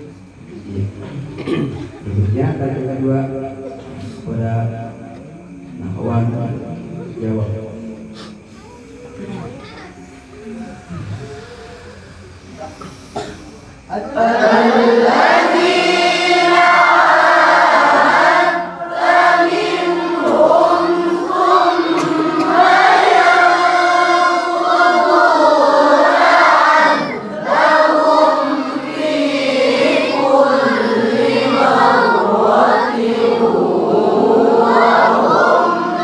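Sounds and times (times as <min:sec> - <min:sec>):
group of voices chanting: 0:09.2 - 0:36.0.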